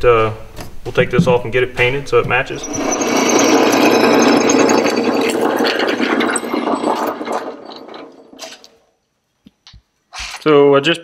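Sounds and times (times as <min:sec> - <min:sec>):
drill press cutting metal: 0:02.6 - 0:08.7.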